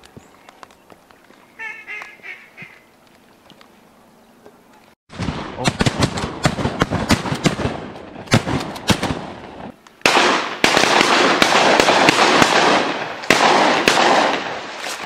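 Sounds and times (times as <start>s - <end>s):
shotgun fire: 5.1s - 9.4s, 10.0s - 14.8s.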